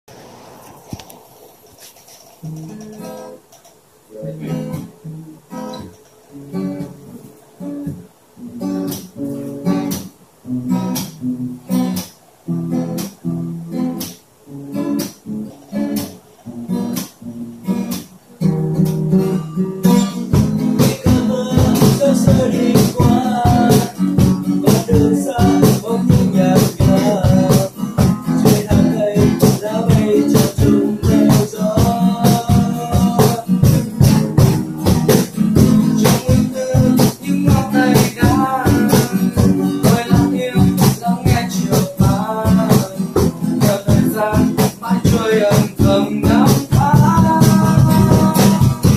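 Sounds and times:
acoustic guitars strumming: 0.1s - 48.9s
hand drum beat: 19.8s - 48.9s
person singing: 20.6s - 34.3s, 35.8s - 48.9s.

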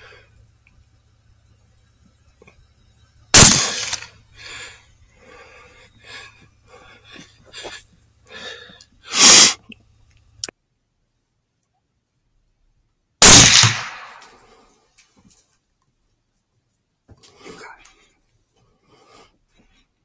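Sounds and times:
rifle shot: 3.3s - 4.1s, 13.2s - 14.4s.

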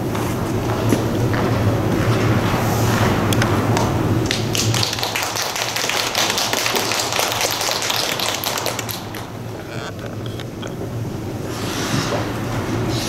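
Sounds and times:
low steady hum: 0.0s - 13.0s
audience clapping: 3.7s - 10.4s.

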